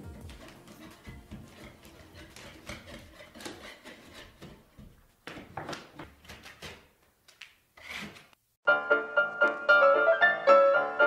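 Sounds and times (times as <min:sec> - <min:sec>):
knife scraping plaster on board: 0:00.0 - 0:04.9.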